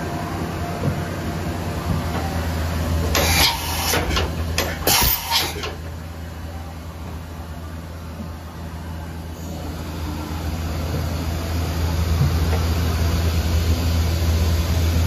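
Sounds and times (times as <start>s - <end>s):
machine hum: 0.0s - 15.0s
tool changer hiss and clunks: 3.0s - 5.9s.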